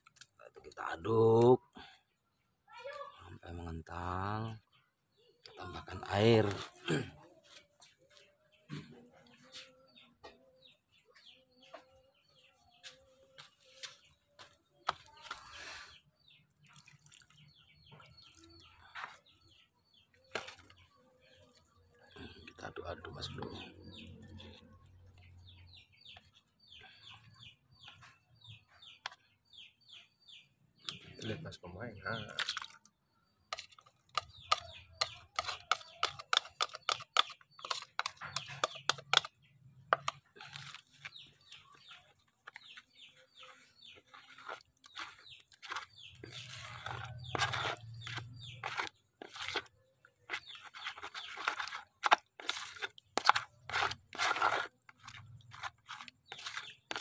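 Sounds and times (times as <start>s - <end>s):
birds chirping: 0.0s - 57.0s
hands squelching dough: 13.3s - 25.4s, 32.1s - 57.0s.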